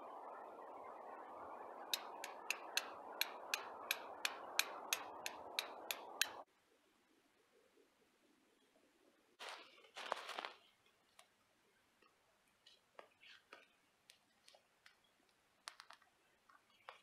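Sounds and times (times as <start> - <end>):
steady low hiss: 0.0 - 17.0
flint striking steel clicks: 1.9 - 6.4.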